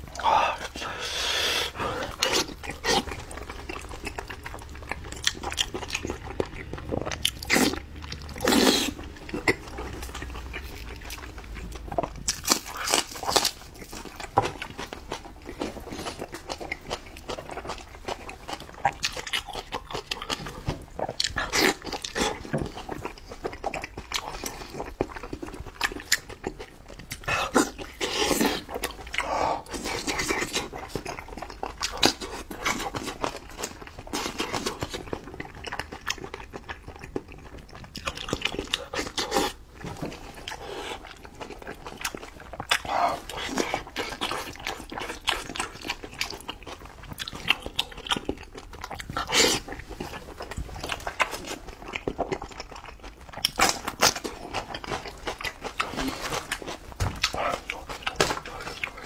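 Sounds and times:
wet chewing and lip-smacking: 1.7s - 59.0s.

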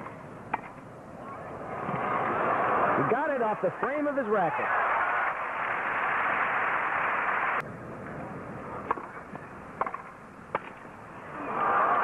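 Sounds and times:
tennis ball struck by rackets: 0.0s - 0.8s, 8.8s - 10.9s.

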